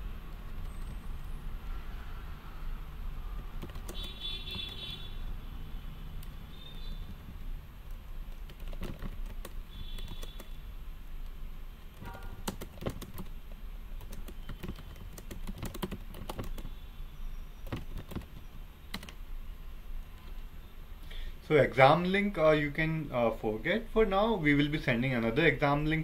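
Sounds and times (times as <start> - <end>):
keyboard keystroke clicks: 11.8 - 13.4, 14.0 - 16.7, 17.7 - 19.2.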